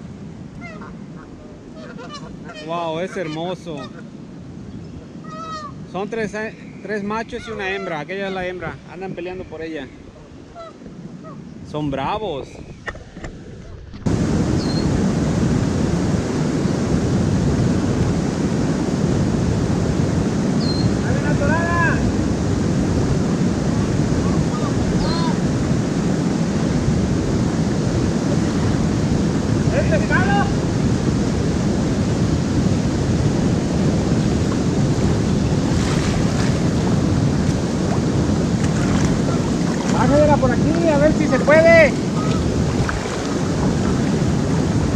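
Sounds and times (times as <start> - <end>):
wind buffeting microphone: 0.0 - 44.9
water rushing over a dam: 14.1 - 44.9
boots wading through shallow water: 34.5 - 41.3, 41.9 - 44.3.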